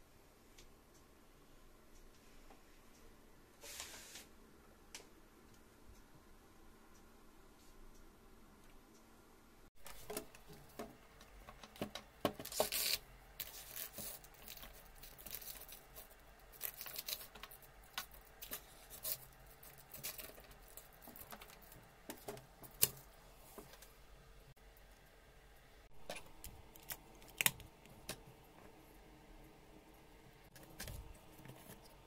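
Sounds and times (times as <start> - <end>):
plastic handling rustles and taps: 9.8 - 23.0.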